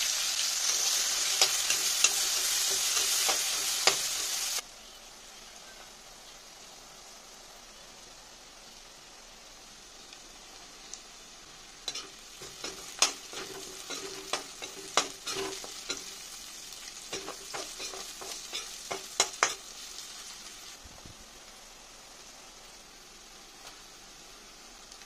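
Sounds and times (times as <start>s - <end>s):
onion sizzling in hot oil: 0.0s - 25.0s
spatula scraping a pan: 11.9s - 16.2s, 17.1s - 19.6s.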